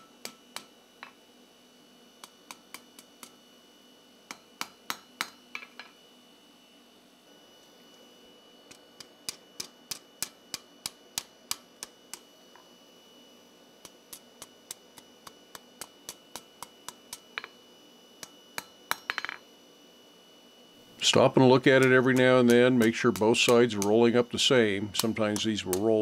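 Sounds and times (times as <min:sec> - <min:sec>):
hammer striking hot steel: 0:00.0 - 0:01.2, 0:02.2 - 0:03.4, 0:04.3 - 0:06.0, 0:08.7 - 0:12.3, 0:13.8 - 0:17.6, 0:18.2 - 0:19.4, 0:21.0 - 0:26.0
small hammer taps: 0:21.8 - 0:24.1, 0:24.9 - 0:26.0.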